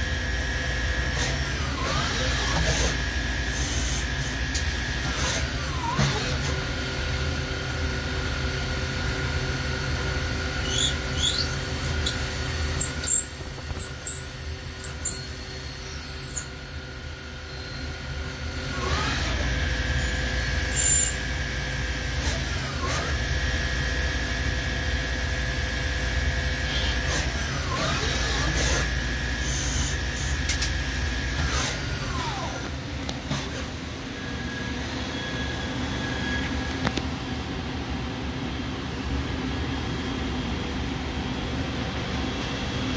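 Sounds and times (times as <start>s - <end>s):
lathe spindle whine: 0.0s - 32.7s
cutting tool squeals: 10.6s - 16.6s, 17.4s - 18.0s, 18.8s - 21.4s, 26.6s - 30.4s, 35.0s - 36.7s.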